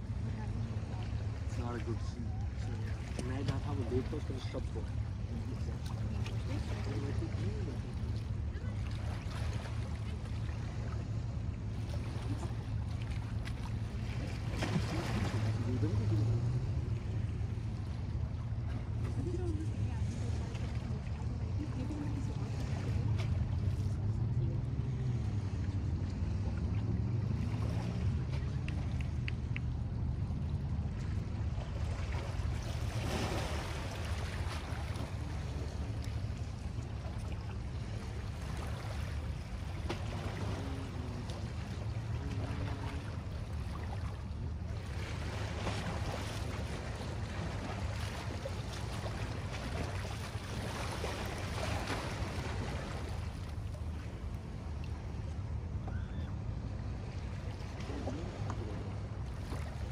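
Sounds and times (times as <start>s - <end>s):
small waves lapping on rocks: 0.0s - 59.9s
steady low rumble: 0.0s - 59.9s.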